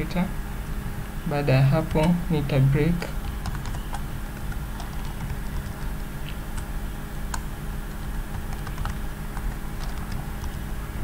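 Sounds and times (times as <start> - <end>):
keyboard typing: 3.2 - 6.7, 7.3 - 10.6.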